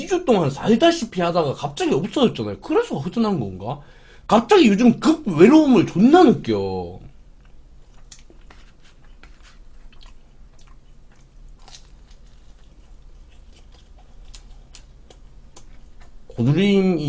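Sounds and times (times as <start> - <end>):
chewing pizza crust: 7.4 - 16.5.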